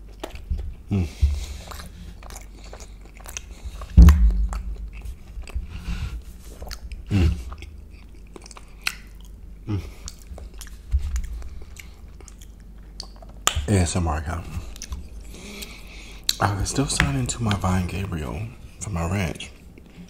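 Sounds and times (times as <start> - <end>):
low thumps: 0.5 - 2.1, 3.6 - 6.3
wet chewing mouth smacks: 1.3 - 5.7, 6.5 - 13.6.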